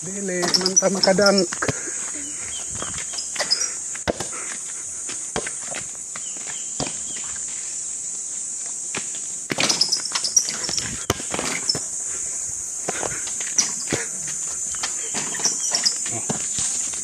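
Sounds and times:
high-pitched insect drone: 0:00.0 - 0:17.0
knocks and scuffs: 0:00.4 - 0:07.6
footsteps: 0:00.4 - 0:07.8, 0:10.6 - 0:17.0.

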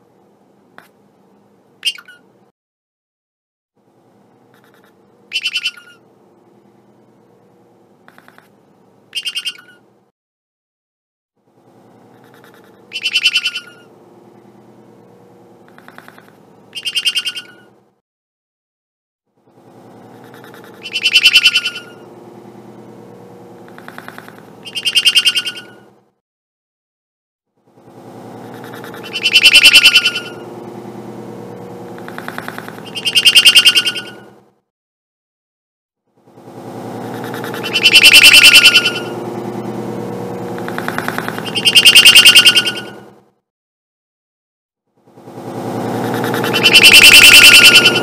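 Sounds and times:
faint room hum: 0:00.0 - 0:02.5, 0:03.8 - 0:10.1, 0:11.4 - 0:18.0, 0:19.4 - 0:26.2, 0:27.7 - 0:34.6, 0:36.2 - 0:43.3
parakeet high calls: 0:01.8 - 0:02.3, 0:05.3 - 0:06.0, 0:09.1 - 0:09.9, 0:12.6 - 0:13.9, 0:15.9 - 0:17.7, 0:20.6 - 0:22.1, 0:23.8 - 0:25.9, 0:28.8 - 0:30.5, 0:32.0 - 0:34.3, 0:37.2 - 0:39.2, 0:40.6 - 0:43.1, 0:46.2 - 0:48.0
pet bird chirping: 0:01.8 - 0:02.3, 0:04.5 - 0:06.1, 0:08.1 - 0:08.5, 0:09.1 - 0:09.9, 0:12.1 - 0:14.0, 0:15.7 - 0:17.8, 0:20.2 - 0:22.1, 0:23.7 - 0:25.9, 0:28.5 - 0:30.5, 0:32.0 - 0:34.3, 0:37.1 - 0:39.2, 0:40.6 - 0:43.1, 0:46.0 - 0:48.0
loud bursts: 0:45.4 - 0:48.0.

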